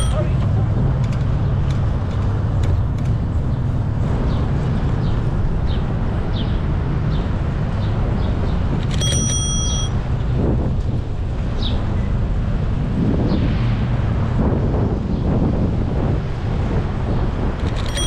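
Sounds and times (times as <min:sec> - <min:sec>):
bicycle bell ringing: 0:00.0 - 0:00.4, 0:08.9 - 0:10.0, 0:17.7 - 0:18.0
wind buffeting microphone: 0:00.0 - 0:09.0, 0:09.9 - 0:18.0
road rumble: 0:00.0 - 0:18.0.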